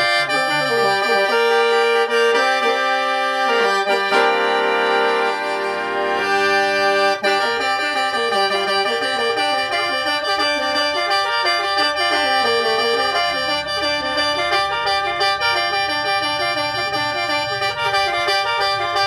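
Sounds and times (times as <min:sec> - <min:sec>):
mouth organ melody over drone: 0:00.0 - 0:19.0.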